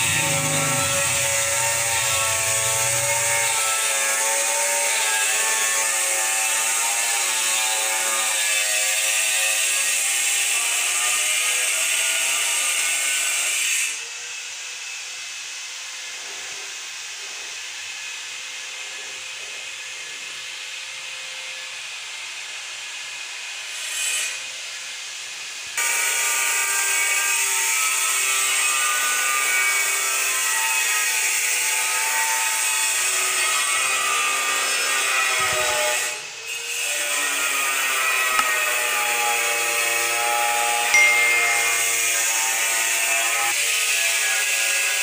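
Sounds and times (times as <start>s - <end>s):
power tool whining: 0.0s - 4.7s, 33.0s - 43.6s.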